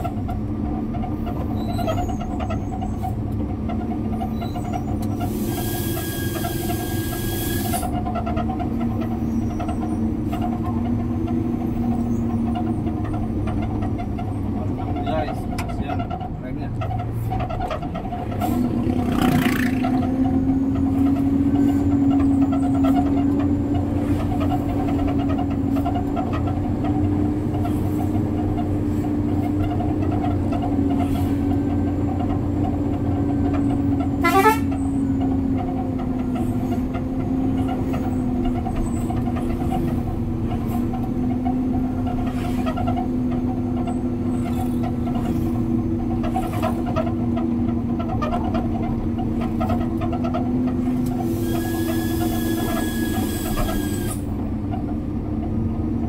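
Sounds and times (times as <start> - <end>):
truck engine drone: 0.0 - 56.0.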